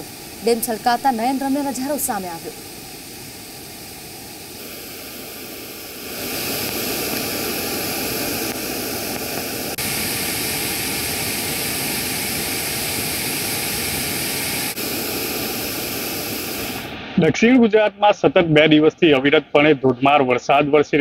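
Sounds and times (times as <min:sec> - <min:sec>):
floodwater rushing over weir: 0:00.0 - 0:02.6, 0:05.1 - 0:16.9.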